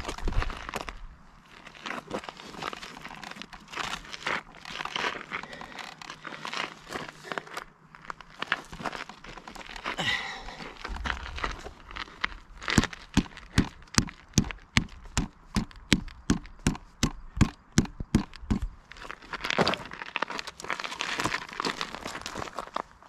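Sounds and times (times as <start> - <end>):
scuffing and crunching: 0.0 - 16.9, 18.1 - 23.0.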